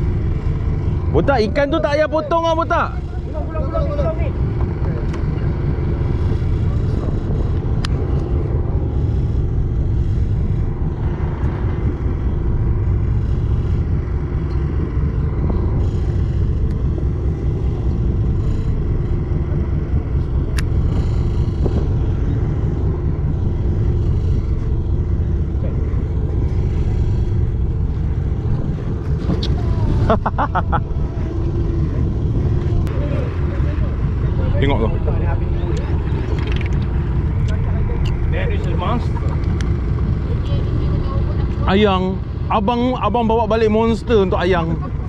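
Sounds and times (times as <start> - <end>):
boat engine droning: 0.0 - 45.0.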